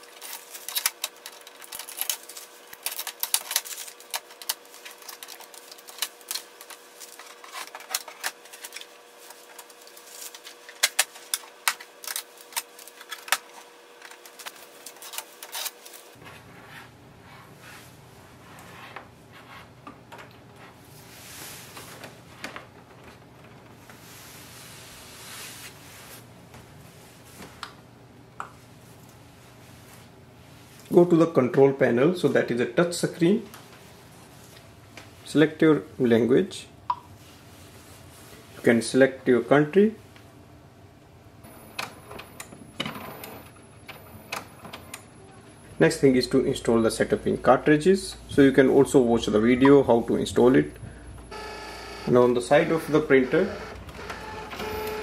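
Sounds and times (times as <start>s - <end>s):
packing tape peeling off plastic: 0.0s - 16.2s
low steady hum: 0.0s - 55.0s.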